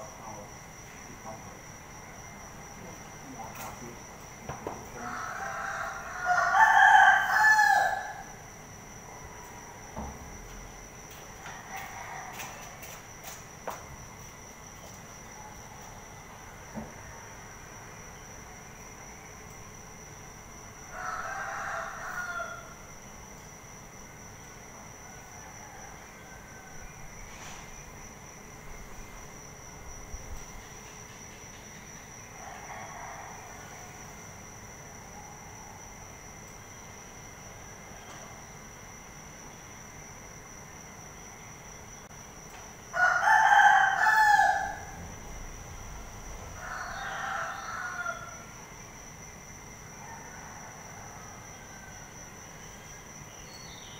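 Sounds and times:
rooster crowing: 0:04.9 - 0:08.4, 0:11.4 - 0:12.8, 0:20.8 - 0:23.0, 0:24.9 - 0:27.2, 0:32.4 - 0:34.2, 0:42.8 - 0:48.6, 0:49.9 - 0:52.7.

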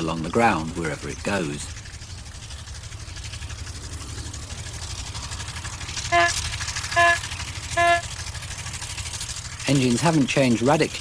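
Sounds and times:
old car engine chugging: 0:00.0 - 0:11.0
car horn toot: 0:06.1 - 0:08.1.

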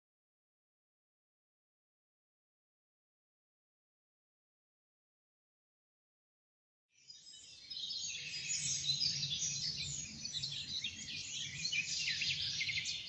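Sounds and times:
small birds chirping: 0:07.0 - 0:13.0.

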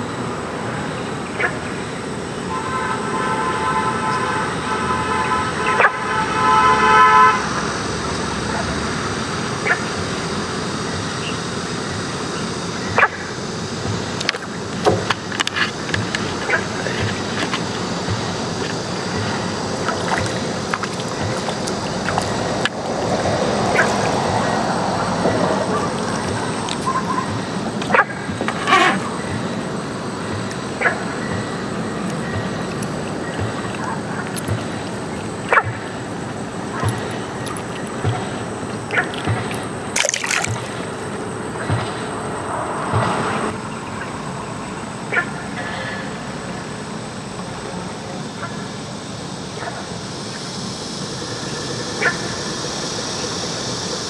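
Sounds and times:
fish splashing at surface: 0:36.8 - 0:41.1
small splash of fish released: 0:40.0 - 0:40.8.

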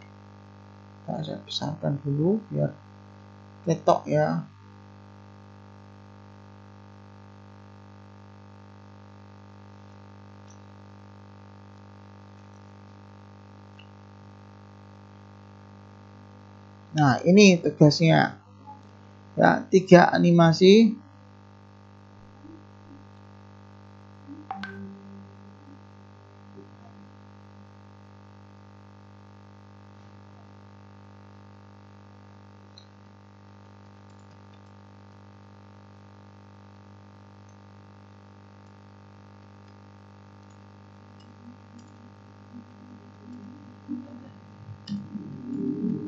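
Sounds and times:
low electrical hum: 0:00.0 - 0:46.0
brief low sound: 0:24.3 - 0:25.9, 0:41.3 - 0:46.0.

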